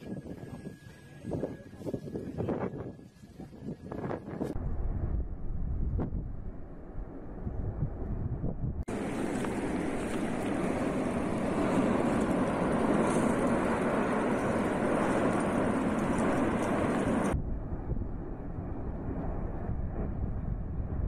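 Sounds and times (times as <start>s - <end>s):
deep roar of erupting volcano: 4.6s - 21.0s.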